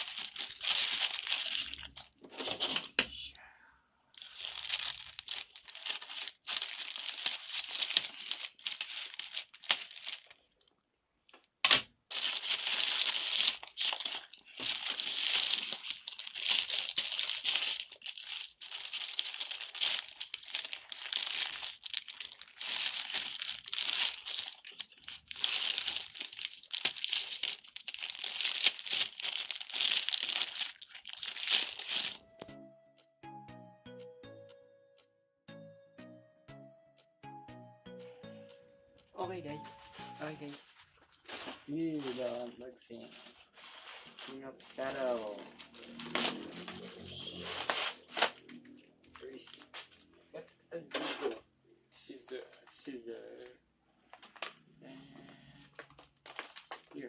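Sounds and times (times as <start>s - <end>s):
plastic bag crinkling and tearing: 0.0s - 2.9s, 4.2s - 10.7s, 11.7s - 32.2s, 40.4s - 49.8s, 55.7s - 57.0s
scissors cutting plastic: 45.9s - 46.8s.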